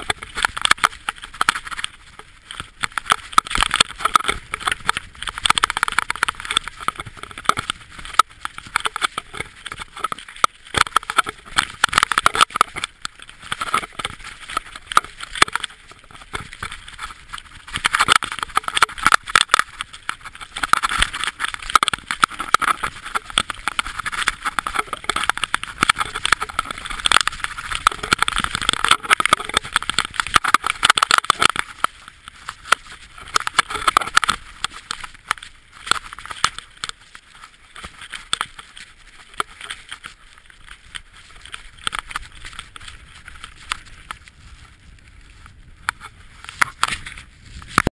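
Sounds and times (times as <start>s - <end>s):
bike rattling over rocks: 0.0s - 47.9s.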